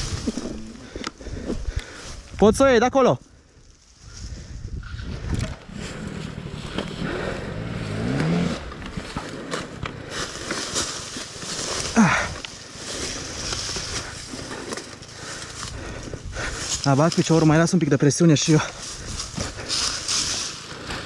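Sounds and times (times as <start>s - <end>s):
dirt bike engine: 0.0s - 2.0s, 4.6s - 21.0s
leaves crackling under wheels: 0.0s - 2.3s, 5.7s - 21.0s.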